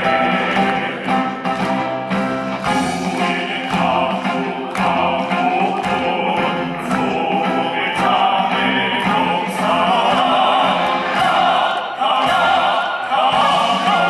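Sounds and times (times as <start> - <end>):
military band playing: 0.0 - 14.0
choir singing slow song: 2.8 - 14.0.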